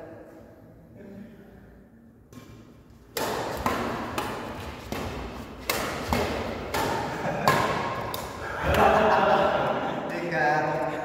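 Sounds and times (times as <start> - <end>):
rackets hitting shuttlecock: 2.3 - 9.0.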